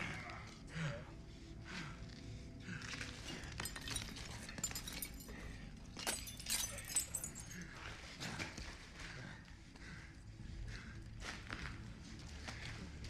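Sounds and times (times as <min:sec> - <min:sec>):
falling glass pieces clinking: 0:03.4 - 0:07.6
glass shattering: 0:03.6 - 0:05.4, 0:06.0 - 0:07.6.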